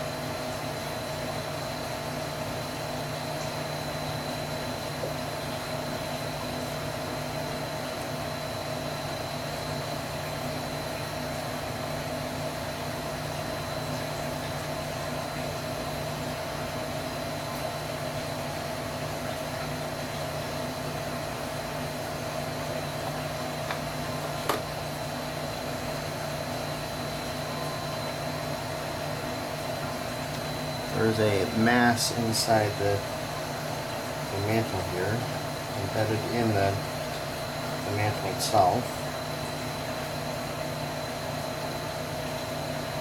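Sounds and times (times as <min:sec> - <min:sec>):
fan hum and hiss: 0:00.0 - 0:43.0.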